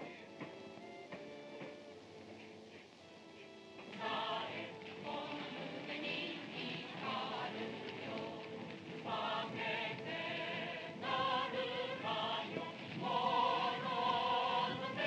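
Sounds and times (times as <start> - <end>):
chorus singing marching song: 0.0 - 15.0.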